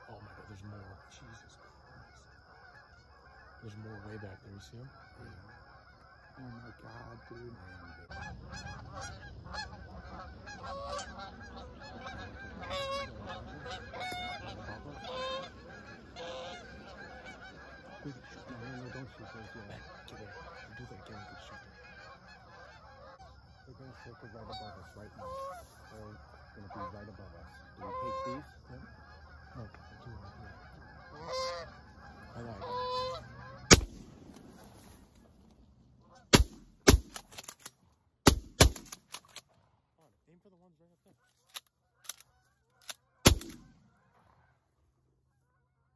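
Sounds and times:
geese honking: 0:00.0 - 0:45.9
shotgun blasts: 0:33.7 - 0:34.6, 0:36.3 - 0:37.5, 0:38.2 - 0:39.2, 0:43.2 - 0:43.7.

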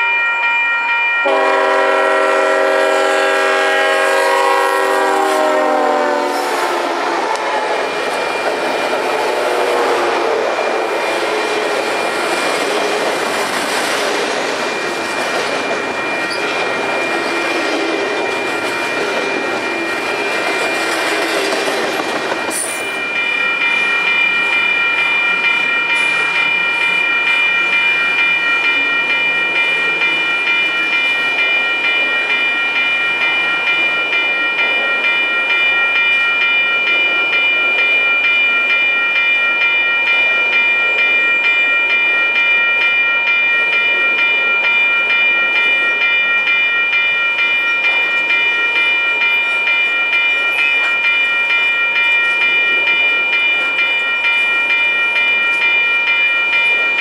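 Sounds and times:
rumble of passing train cars: 0:00.0 - 0:57.0
freight train wheels clicking: 0:10.8 - 0:35.6.

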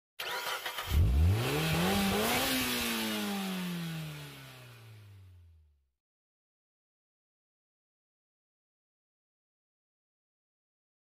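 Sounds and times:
engine revving: 0:00.2 - 0:05.6.

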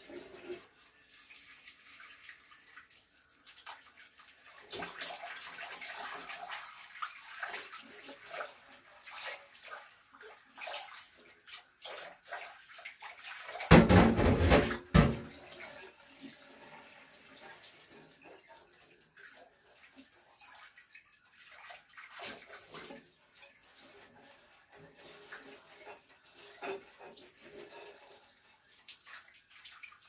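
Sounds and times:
water splashing from tap: 0:00.0 - 0:30.0
dish scrubbing: 0:03.8 - 0:20.0, 0:21.5 - 0:30.0
glass dish knocking: 0:13.7 - 0:15.3.

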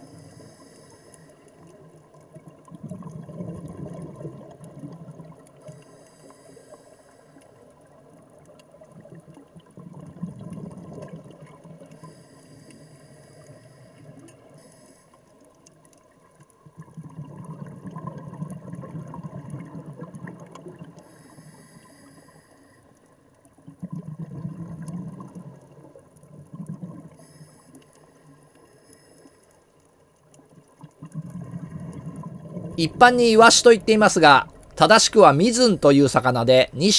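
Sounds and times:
regulator inhale hiss: 0:00.0 - 0:01.6, 0:05.6 - 0:07.6, 0:11.9 - 0:15.4, 0:21.0 - 0:23.1, 0:27.2 - 0:29.6
exhaled bubbles rushing: 0:02.5 - 0:05.4, 0:09.0 - 0:11.7, 0:16.7 - 0:21.0, 0:23.6 - 0:27.2, 0:30.8 - 0:36.9.

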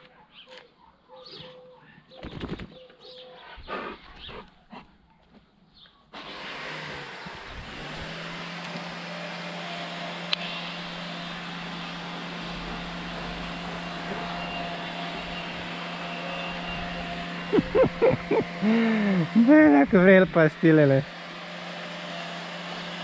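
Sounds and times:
motor running: 0:06.2 - 0:23.0.

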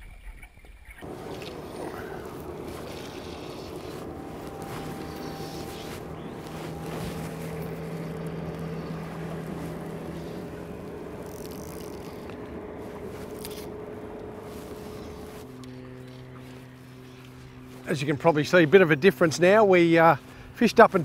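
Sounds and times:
wind: 0:00.0 - 0:21.0
water noise: 0:01.0 - 0:17.7
motorboat engine humming: 0:01.0 - 0:21.0.

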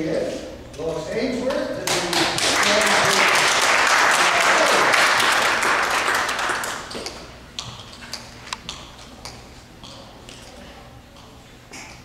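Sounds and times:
audience clapping: 0:01.8 - 0:07.2.

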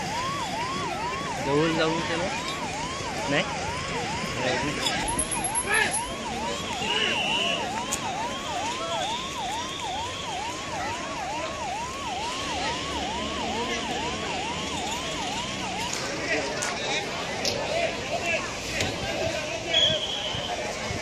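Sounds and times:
siren on fast yelp: 0:00.0 - 0:16.2.

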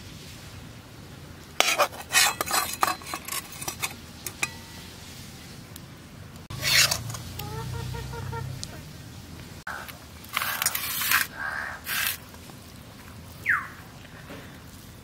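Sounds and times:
metal spatula scraping a pan: 0:01.6 - 0:04.9, 0:06.5 - 0:07.4.

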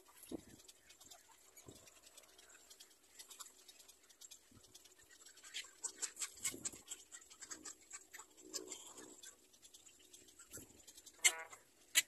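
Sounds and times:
faint scratching and rustling: 0:00.0 - 0:12.0.

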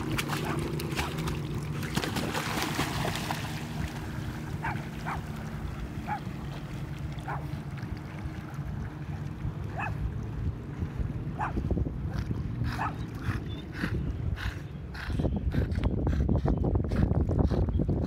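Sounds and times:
dogs splashing in water: 0:00.0 - 0:10.3
wind: 0:00.0 - 0:18.0.

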